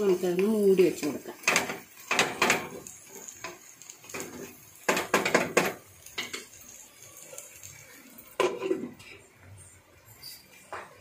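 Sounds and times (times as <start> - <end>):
spatula scraping a pan: 8.3 - 11.0.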